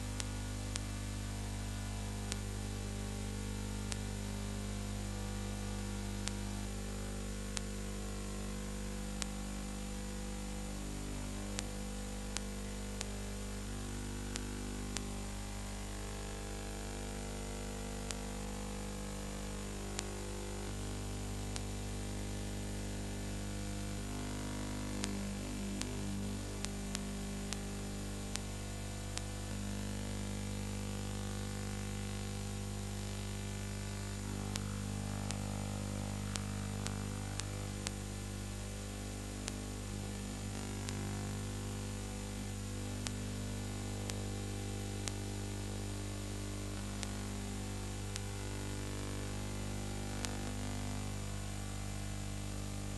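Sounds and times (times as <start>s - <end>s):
electrical hum and hiss: 0.0s - 52.9s.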